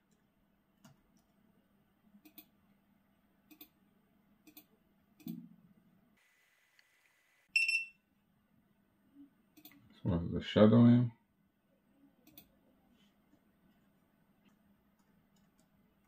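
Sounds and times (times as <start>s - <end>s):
computer mouse clicking: 2.2s - 2.6s, 3.5s - 3.8s, 4.4s - 5.4s, 12.2s - 12.5s, 14.4s - 15.8s
short electronic beep: 7.5s - 8.0s.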